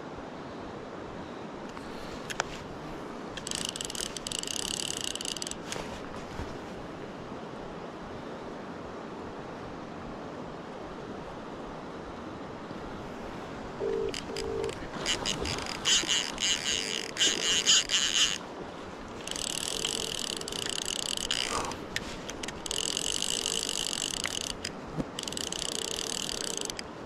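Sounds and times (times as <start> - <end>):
river water running: 0.0 - 27.0
fishing reel buzzing: 3.4 - 5.7, 13.8 - 18.4, 19.2 - 26.9
phone ringback tone: 13.8 - 15.4, 19.4 - 21.0, 25.2 - 26.8.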